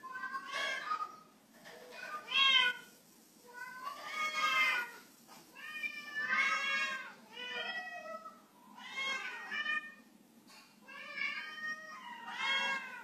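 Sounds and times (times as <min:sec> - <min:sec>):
cat meowing: 0:05.6 - 0:10.0, 0:10.9 - 0:13.0.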